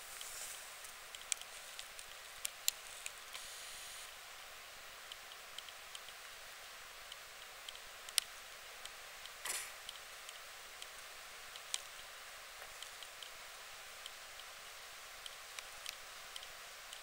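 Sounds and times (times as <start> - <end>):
faint hiss: 0.0 - 17.0
light ticks: 0.1 - 3.5, 5.0 - 6.4, 7.0 - 17.0.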